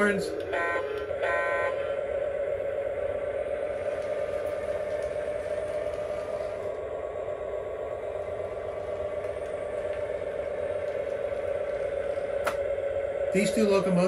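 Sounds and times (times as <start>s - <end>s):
model train motors and wheels: 0.0s - 14.0s.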